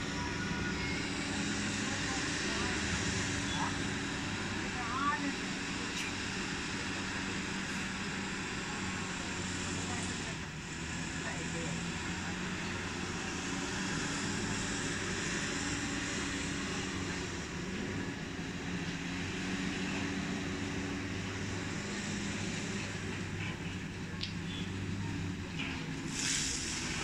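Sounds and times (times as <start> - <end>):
diesel machinery droning: 0.0 - 27.0
broad hiss: 26.0 - 27.0.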